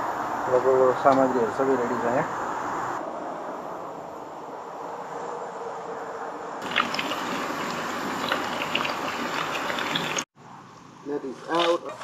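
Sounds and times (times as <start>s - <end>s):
water trickling and splashing: 6.6s - 10.3s.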